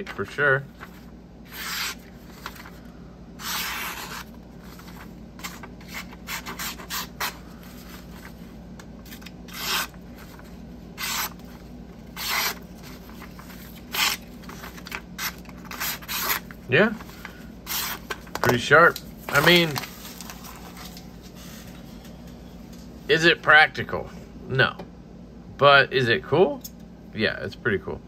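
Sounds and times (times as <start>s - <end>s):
knife slicing through paper: 1.5s - 2.7s, 3.4s - 7.4s, 12.2s - 16.5s.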